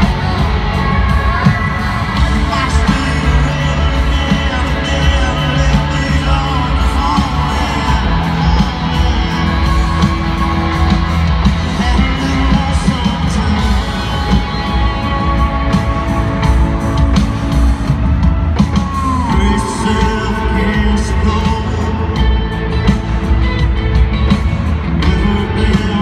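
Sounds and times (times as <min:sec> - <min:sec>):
man singing: 0:00.0 - 0:15.8, 0:18.8 - 0:22.5, 0:24.9 - 0:26.0
country-rock band over stadium speakers: 0:00.0 - 0:26.0.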